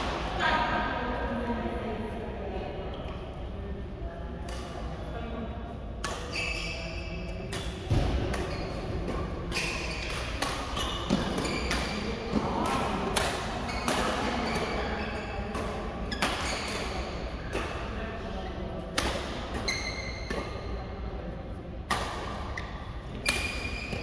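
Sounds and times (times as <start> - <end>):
shoes squeaking on court floor: 6.2 - 12.3, 13.5 - 17.3, 19.6 - 20.8, 22.4 - 24.0
rackets hitting shuttlecocks: 7.5 - 14.8.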